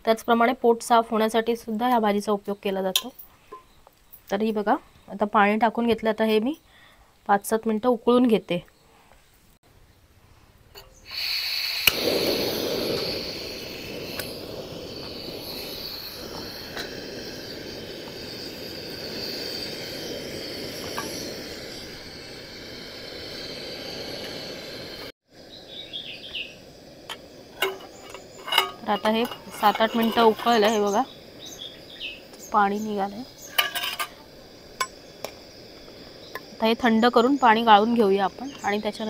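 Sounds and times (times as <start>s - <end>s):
insects chirping: 0.0s - 7.6s, 8.2s - 39.0s
gas burner hiss: 10.4s - 39.0s
water boiling in a pot: 10.7s - 39.0s
birds chirping: 25.4s - 33.7s, 34.7s - 39.0s.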